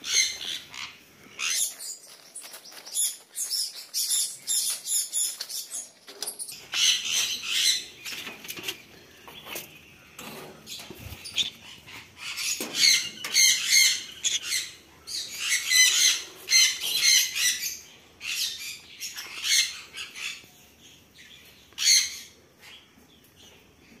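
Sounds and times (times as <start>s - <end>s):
parrot squawking: 11.4s - 14.8s.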